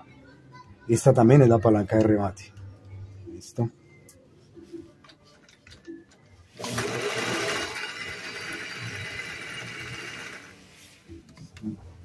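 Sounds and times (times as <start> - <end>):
electric sewing machine sewing: 6.6 - 10.6.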